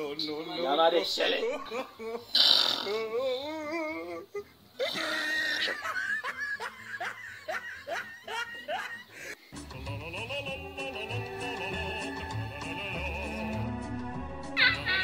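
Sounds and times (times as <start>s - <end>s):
person laughing: 1.4s - 9.3s, 14.6s - 15.0s.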